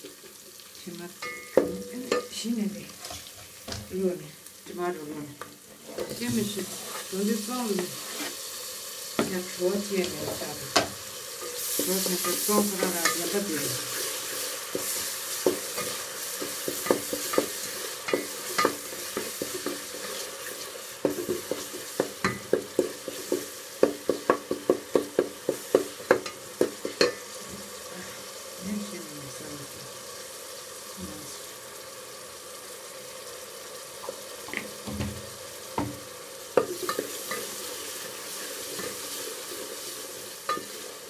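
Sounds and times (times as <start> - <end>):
food sizzling in oil: 0.0 - 41.0
spoon knocking on a pot: 1.2 - 2.3, 21.1 - 27.6
spoon scraping a pot: 5.8 - 8.5.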